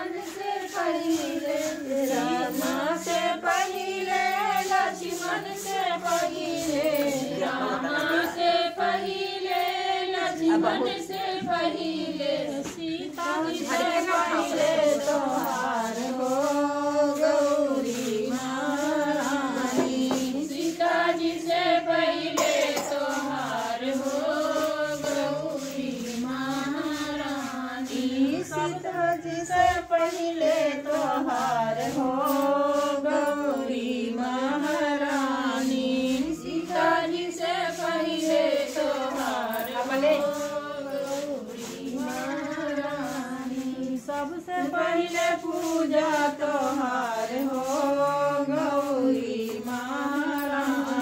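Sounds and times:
group of women singing: 0:00.0 - 0:51.0.

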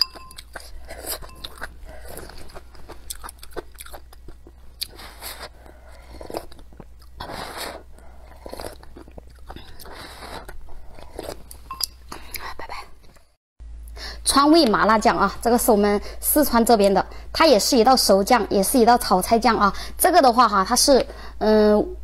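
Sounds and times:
chewing with wet mouth clicks: 0:00.0 - 0:05.5, 0:08.3 - 0:13.2
slurping broth: 0:04.8 - 0:06.6, 0:07.2 - 0:11.6.

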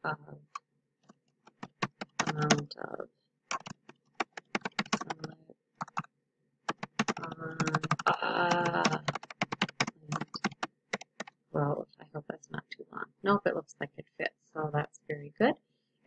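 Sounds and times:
keyboard keys clicking: 0:01.5 - 0:02.7, 0:03.5 - 0:06.1, 0:06.7 - 0:11.3
person speaking: 0:02.1 - 0:03.7, 0:04.6 - 0:05.4, 0:07.0 - 0:10.6, 0:11.6 - 0:15.6.

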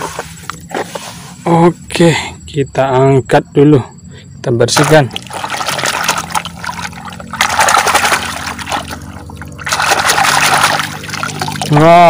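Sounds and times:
water splashing and sloshing: 0:04.7 - 0:12.0.

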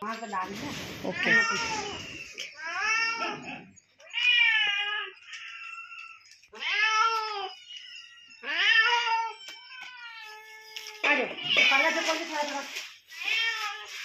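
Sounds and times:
cats meowing: 0:00.8 - 0:14.0.

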